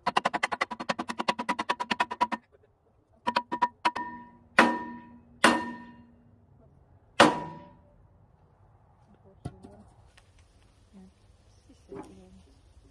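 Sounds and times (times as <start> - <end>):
wooden beam striking steel post: 0.0 - 2.4, 3.3 - 6.2, 7.2 - 7.9
steel post ringing: 3.3 - 6.2, 7.2 - 7.8.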